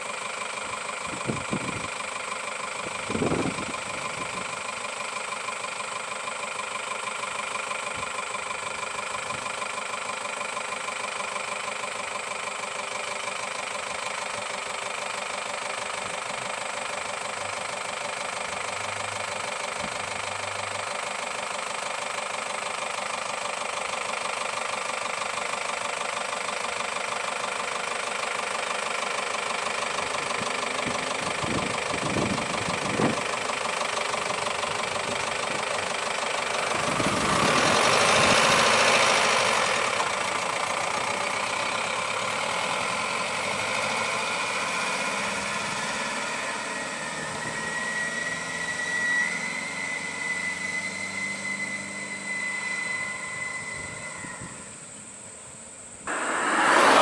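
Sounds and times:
truck engines idling: 0.0s - 57.0s
vehicle passing: 56.1s - 57.0s.

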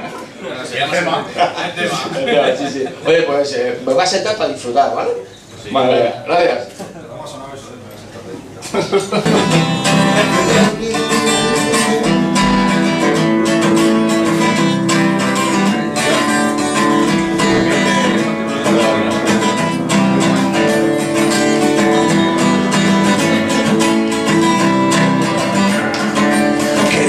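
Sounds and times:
acoustic guitar strumming: 9.2s - 27.0s.

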